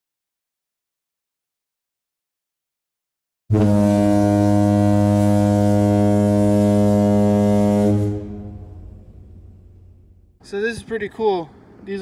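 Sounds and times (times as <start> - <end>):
ship's horn low blast: 3.5 - 10.4.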